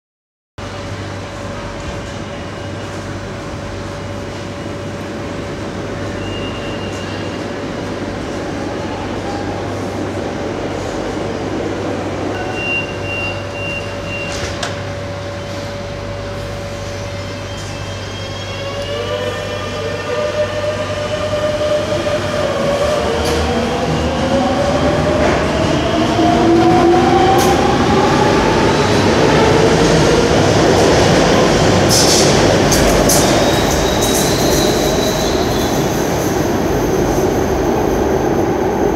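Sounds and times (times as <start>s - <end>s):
short high beep: 12.4s - 14.4s
high wheel squeal: 33.4s - 35.9s.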